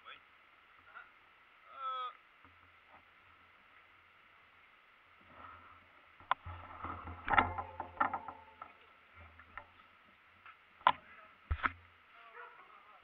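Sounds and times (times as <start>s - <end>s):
bikes clicking and knocking: 5.2s - 12.0s.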